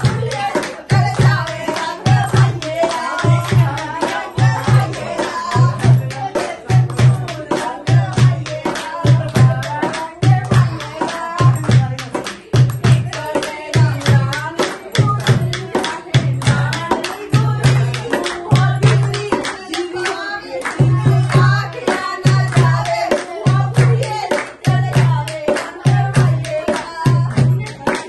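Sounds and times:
barrel hand drum: 0.0s - 28.0s
women singing folk song: 0.0s - 28.0s
hands clapping: 6.2s - 28.0s.

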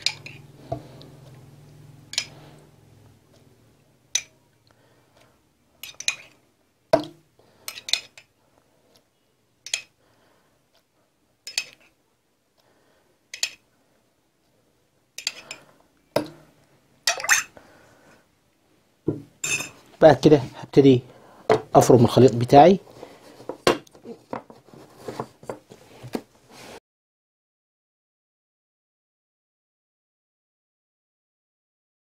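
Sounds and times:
metal spoon clinking against glass: 19.4s - 19.8s.

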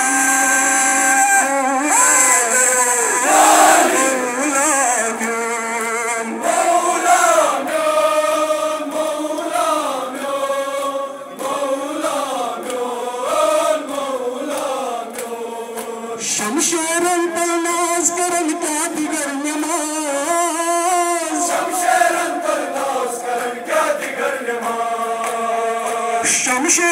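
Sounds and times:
men chanting a lament: 0.0s - 26.9s
hand slaps on chests: 12.6s - 12.9s, 13.9s - 15.9s.

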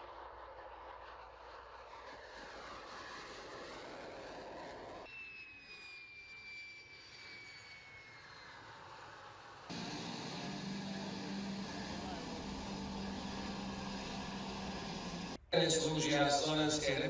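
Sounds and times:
jet engine roaring: 0.0s - 15.5s
high jet whine falling in pitch: 4.9s - 15.4s.

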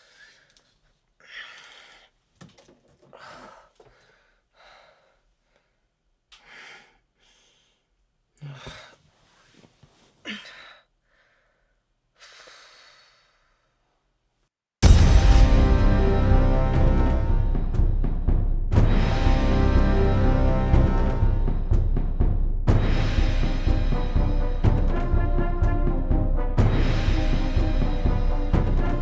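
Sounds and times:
woman breathing heavily: 0.0s - 2.3s, 3.0s - 13.8s.

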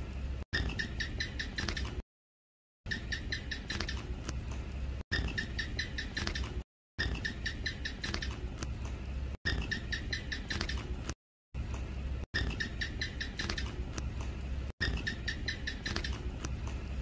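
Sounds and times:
gecko chirping: 0.6s - 2.0s, 2.9s - 4.2s, 5.1s - 8.5s, 9.5s - 11.1s, 12.4s - 14.0s, 14.8s - 16.5s.

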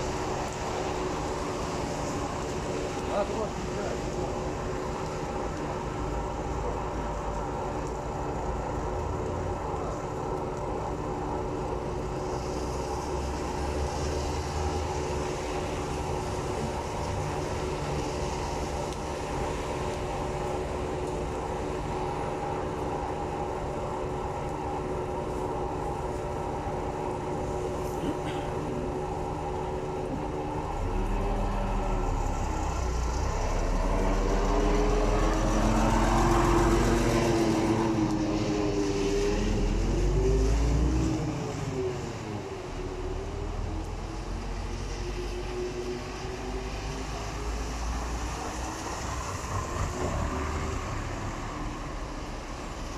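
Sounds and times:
bus engine idling and revving: 26.3s - 52.9s.

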